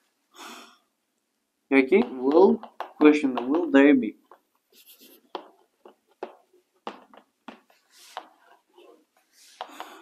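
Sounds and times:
chalk tapping on chalkboard: 1.8s - 10.0s
chalk scraping on chalkboard: 1.9s - 6.4s, 7.5s - 10.0s.

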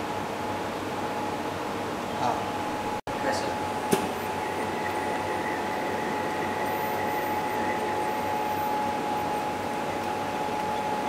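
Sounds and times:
machine humming with whine: 2.4s - 11.0s.

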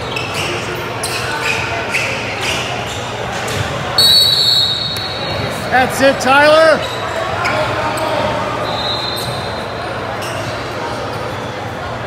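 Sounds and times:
crowd voices: 0.0s - 12.0s
referee's whistle: 4.0s - 5.4s, 8.6s - 9.8s.

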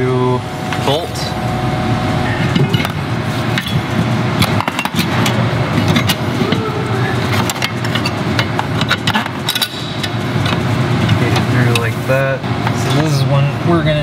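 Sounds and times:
low steady rumble: 0.0s - 6.9s.

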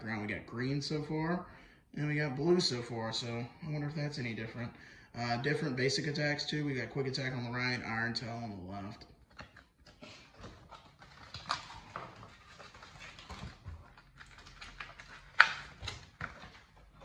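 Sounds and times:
trading cards clicking and rustling: 9.2s - 17.0s.

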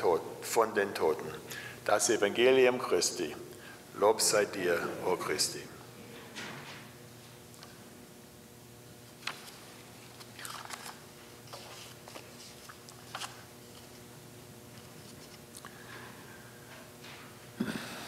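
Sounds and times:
steady low hum: 0.0s - 18.0s
paper rustling: 9.2s - 14.0s, 14.7s - 15.7s.

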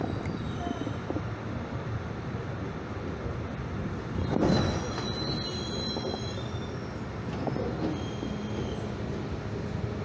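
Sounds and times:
train wheels rumbling on rail: 0.0s - 10.0s
metallic wheel squeal: 4.2s - 8.9s.

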